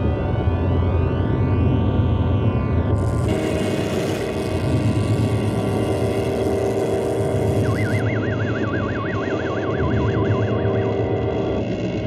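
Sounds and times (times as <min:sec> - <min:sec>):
warbling electronic tone: 0:03.0 - 0:12.0.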